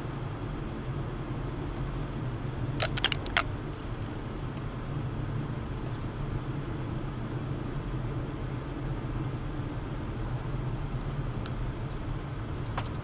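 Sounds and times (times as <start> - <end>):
car cabin road and engine noise: 0.0 - 13.0
sharp clicks: 2.8 - 3.5.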